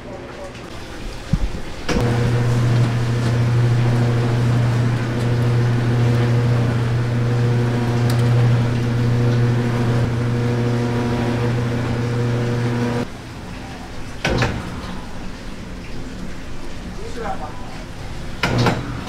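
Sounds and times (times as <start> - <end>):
mixing machine motor humming: 0.7 - 13.1.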